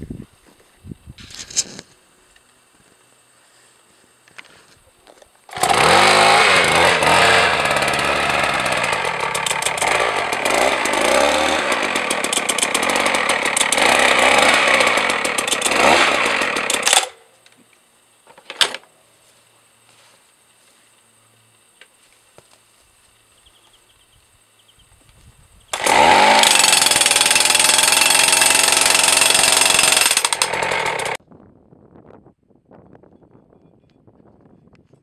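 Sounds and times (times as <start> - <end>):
petrol percussion hammer engine: 5.5 - 17.2, 25.7 - 31.2.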